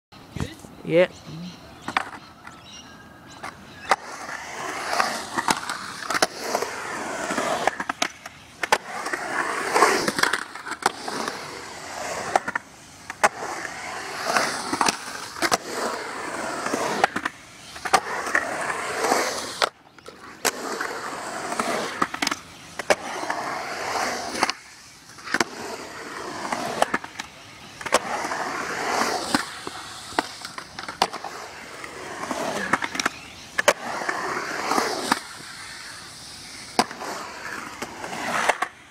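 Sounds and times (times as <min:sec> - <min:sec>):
skateboard wheels rolling on concrete: 0:00.2 - 0:38.9
skateboard clacking on concrete: 0:01.8 - 0:02.6, 0:03.3 - 0:11.4, 0:24.0 - 0:36.0.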